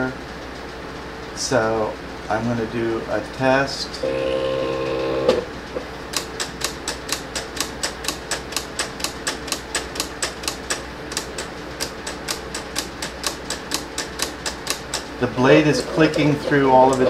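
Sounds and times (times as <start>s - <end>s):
faint steady hum: 1.2s - 17.0s
cutting machine blade clicking: 6.1s - 15.3s, 16.0s - 17.0s.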